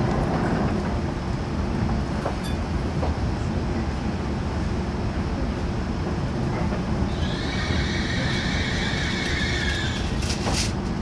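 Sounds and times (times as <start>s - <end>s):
train running rumble: 0.0s - 11.0s
high brake squeal: 7.1s - 10.2s.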